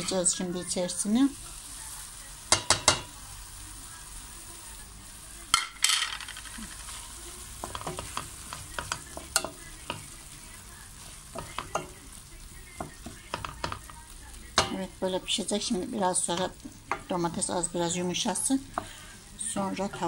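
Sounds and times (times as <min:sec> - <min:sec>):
vegetables sizzling in a pot: 0:00.0 - 0:20.0
utensil stirring and scraping: 0:06.5 - 0:14.9
utensil clicking against pot: 0:07.6 - 0:10.1, 0:11.3 - 0:12.0, 0:12.8 - 0:14.0.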